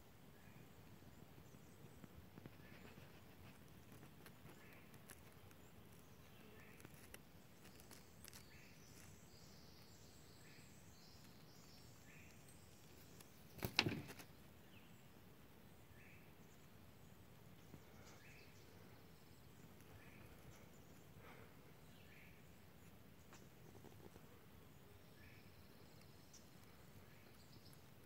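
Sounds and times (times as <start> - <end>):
clicks and rustling: 13.1 - 14.3.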